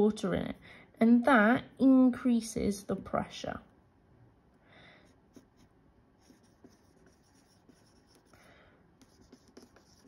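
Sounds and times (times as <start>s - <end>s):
marker scratching on whiteboard: 5.3s - 10.0s.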